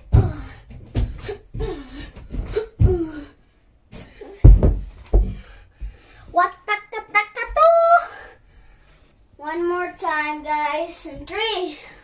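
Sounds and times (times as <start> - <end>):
heavy thump on floor: 4.4 - 6.0.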